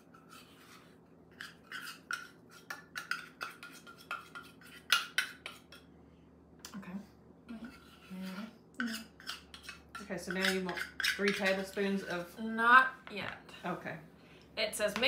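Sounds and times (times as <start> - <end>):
spoon scraping dough in bowl: 0.0 - 5.9, 7.5 - 12.4.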